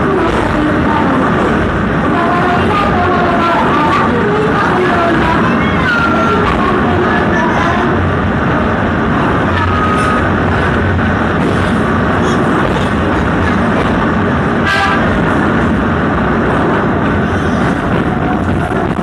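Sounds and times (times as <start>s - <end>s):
diesel locomotive engine drone: 0.0s - 19.0s
train wheels on rails: 0.0s - 19.0s
train horn toot: 14.6s - 15.1s.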